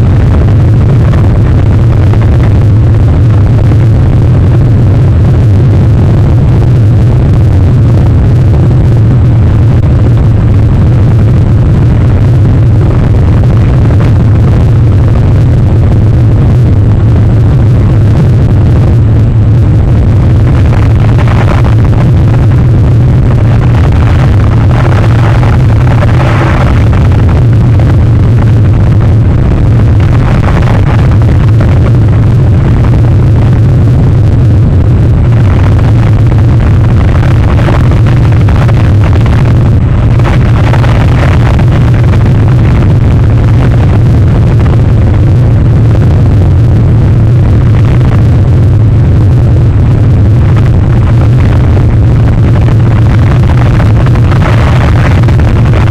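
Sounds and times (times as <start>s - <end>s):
storm wind roaring: 0.0s - 55.9s
surf rushing: 16.5s - 46.0s.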